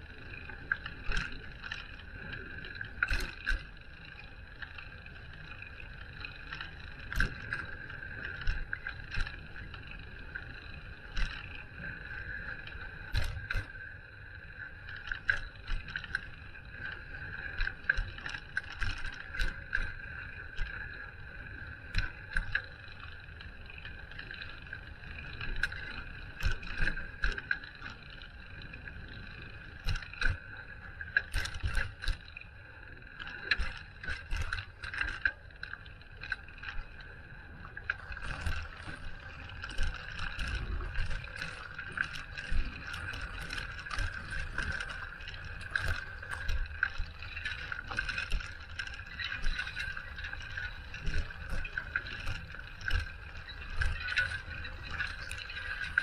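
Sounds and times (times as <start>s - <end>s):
constant high hum: 0.0s - 56.0s
bicycle ride rush: 3.4s - 4.0s.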